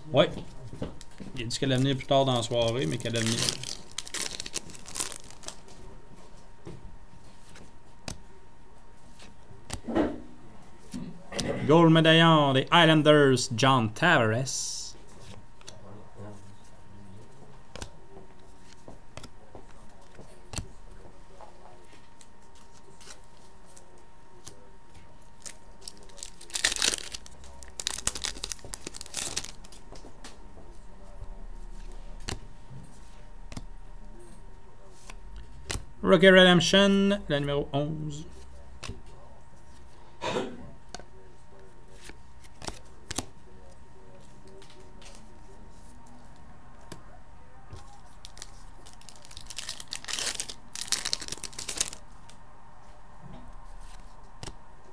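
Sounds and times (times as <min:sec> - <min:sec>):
cards rustling: 0:00.9 - 0:05.9, 0:17.7 - 0:21.1, 0:21.9 - 0:33.7, 0:41.9 - 0:47.0, 0:47.7 - 0:52.4, 0:53.6 - 0:54.6
wrapper tearing and crinkling: 0:02.6 - 0:05.7, 0:25.4 - 0:29.8, 0:48.1 - 0:52.0.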